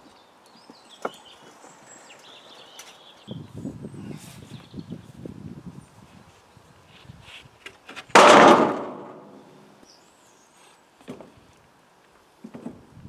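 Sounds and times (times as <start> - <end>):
plywood sheet slapping onto steel: 8.1 - 9.4.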